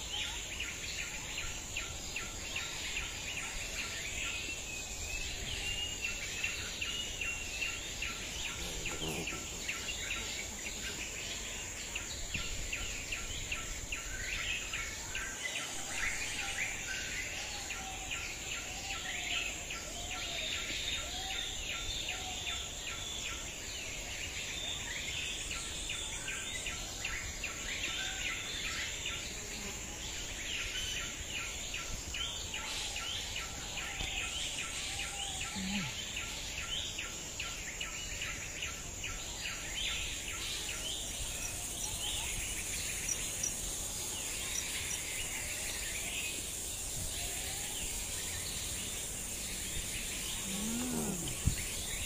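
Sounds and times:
birds chirping: 0:01.9 - 0:17.4, 0:39.2 - 0:52.0.

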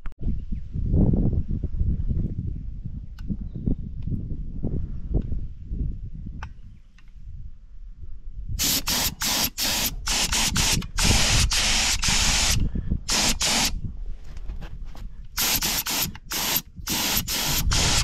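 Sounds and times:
spray gun hissing: 0:08.6 - 0:13.8, 0:15.4 - 0:18.0.

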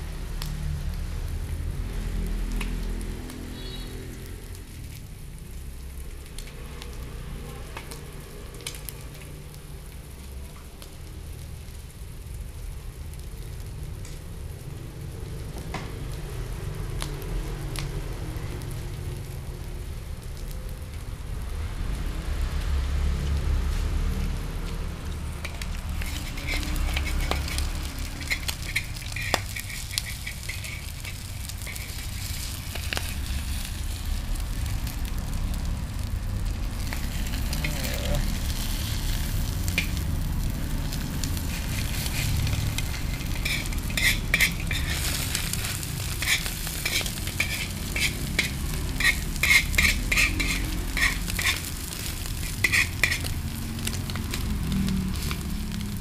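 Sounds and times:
egg and onion sizzling in oil: 0:00.0 - 0:56.0
metal spoon scraping pan: 0:25.4 - 0:33.7, 0:36.8 - 0:40.1, 0:41.2 - 0:54.4.

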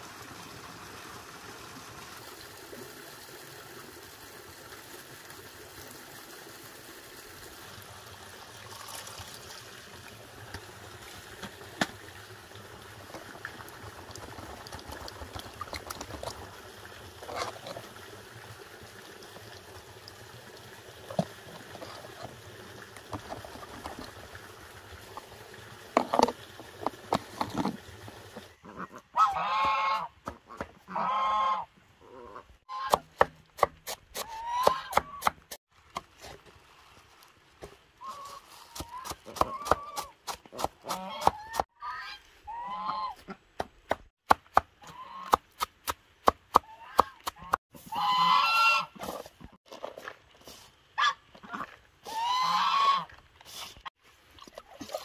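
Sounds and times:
trickling water: 0:00.0 - 0:30.0, 0:35.6 - 0:39.0, 0:47.4 - 0:55.0
geese honking: 0:28.6 - 0:30.1, 0:30.9 - 0:31.7, 0:47.9 - 0:49.0, 0:52.1 - 0:53.1.

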